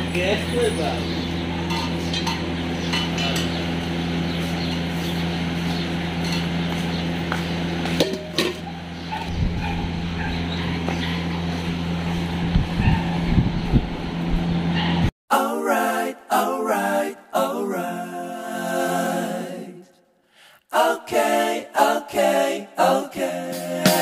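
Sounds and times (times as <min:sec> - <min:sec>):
low mechanical hum: 0:00.0 - 0:15.1.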